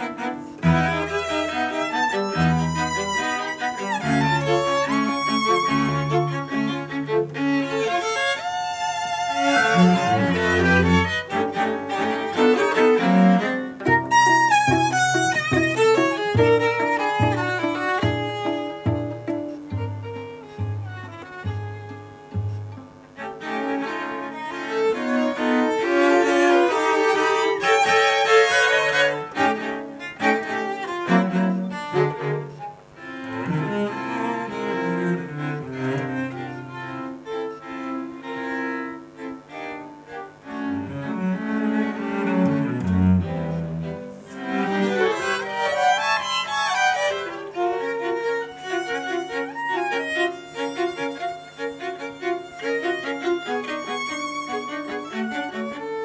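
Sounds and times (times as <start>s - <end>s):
string quartet playing: 0.0s - 56.0s.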